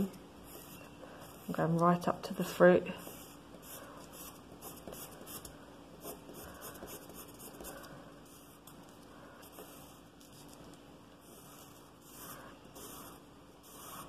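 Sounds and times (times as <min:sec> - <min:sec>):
pencil scratching on paper: 0:00.4 - 0:01.8, 0:03.0 - 0:08.6, 0:09.4 - 0:10.6, 0:11.2 - 0:14.0.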